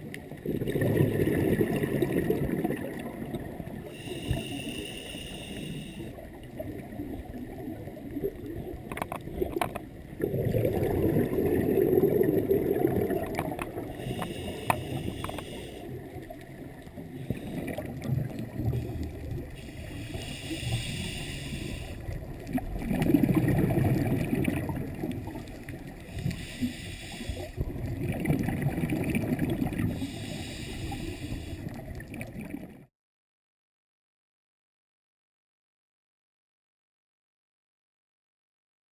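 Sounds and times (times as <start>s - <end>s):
bubbling of exhaled bubbles: 0.0s - 3.9s, 6.3s - 14.0s, 17.0s - 19.6s, 22.1s - 25.9s, 27.6s - 30.0s, 31.7s - 32.9s
regulator inhalation hiss: 3.8s - 6.2s, 13.9s - 16.0s, 18.7s - 22.2s, 26.0s - 27.6s, 30.0s - 31.8s.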